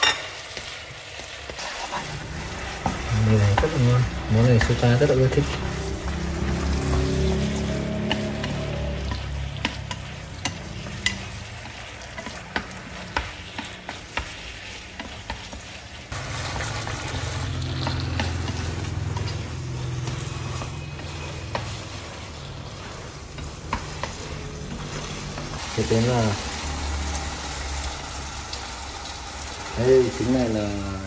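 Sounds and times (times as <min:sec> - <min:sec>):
noodles sizzling in a pan: 0:00.0 - 0:31.0
chopsticks tapping a pan: 0:02.6 - 0:15.8, 0:16.6 - 0:25.6.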